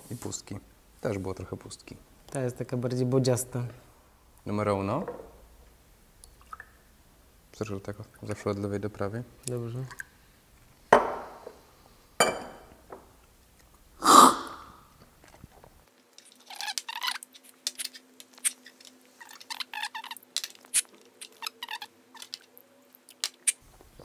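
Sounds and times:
cups clicking and tapping: 0:10.9 - 0:11.6, 0:12.2 - 0:13.1
person slurping coffee: 0:14.0 - 0:14.8.

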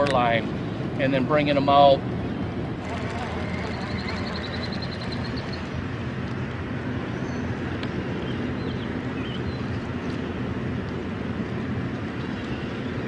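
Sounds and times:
wind: 0:00.0 - 0:13.0
water noise: 0:02.6 - 0:07.1
boat motor humming: 0:02.7 - 0:07.2.

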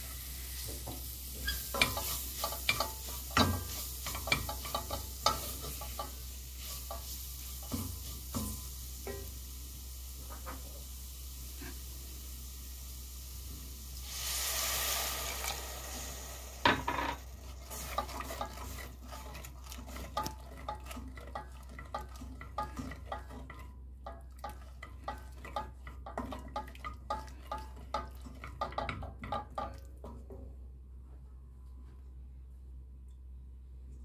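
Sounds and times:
utensil scraping in a pot: 0:00.0 - 0:09.4, 0:11.5 - 0:12.0, 0:14.0 - 0:30.0
food sizzling in a pot: 0:00.0 - 0:29.8.

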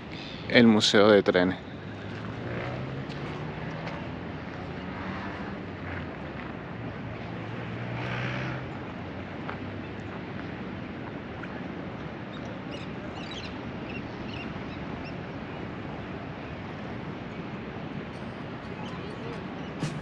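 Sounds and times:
steady hiss of traffic or wind: 0:00.0 - 0:20.0
vehicle engine hum: 0:01.3 - 0:10.6, 0:15.6 - 0:20.0.

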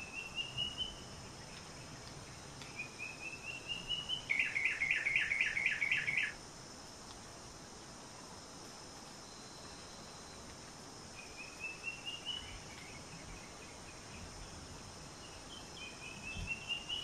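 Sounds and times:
bird chirping: 0:00.0 - 0:06.4, 0:15.2 - 0:17.0
high insect drone: 0:00.0 - 0:17.0.

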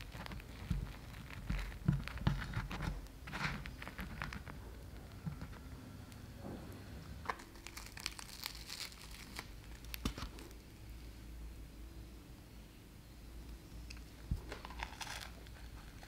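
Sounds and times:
crisp bun crust crackling: 0:00.0 - 0:05.8, 0:07.3 - 0:10.7, 0:13.9 - 0:16.0.

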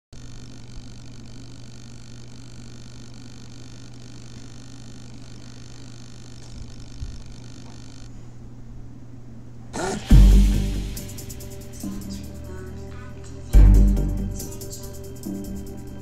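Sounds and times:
low electrical hum: 0:00.2 - 0:16.0
loud abrupt sound: 0:09.8 - 0:12.5.

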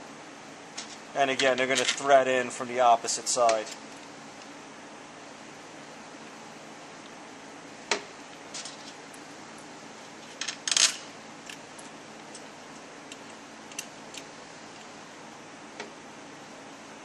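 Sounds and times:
metal bolts clicking and clinking: 0:08.3 - 0:14.9.

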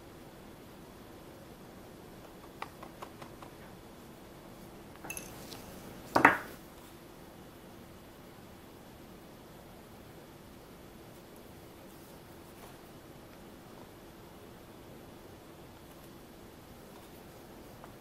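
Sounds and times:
ringing clink: 0:05.1 - 0:05.4.

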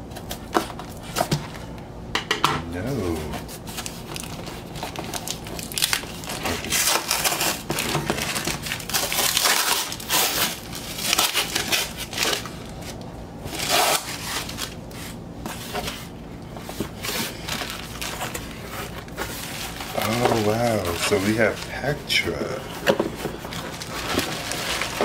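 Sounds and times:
cardboard box scraping and ripping: 0:23.5 - 0:25.0.

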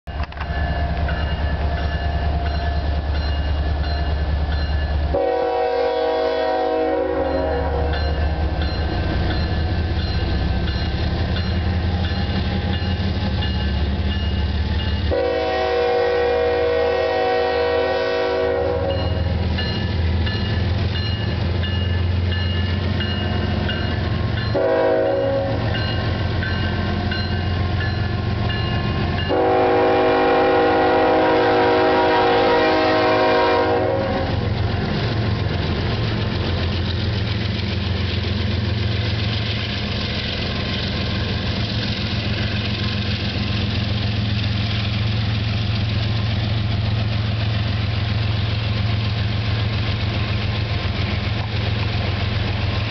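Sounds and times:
diesel locomotive engine rumble: 0:00.0 - 0:52.9
train air horn blasts: 0:05.1 - 0:08.1, 0:15.1 - 0:19.4, 0:24.5 - 0:25.8, 0:29.2 - 0:34.6.

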